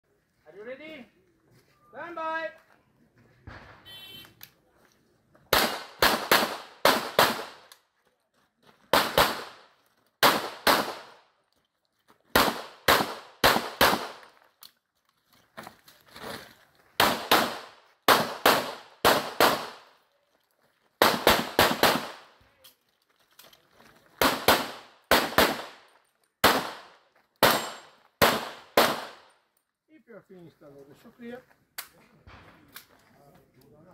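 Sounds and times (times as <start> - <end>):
pistol shots: 5.5 - 7.7, 8.9 - 11.2, 12.3 - 14.3, 17.0 - 19.9, 21.0 - 22.4, 24.2 - 25.8, 26.4 - 29.3.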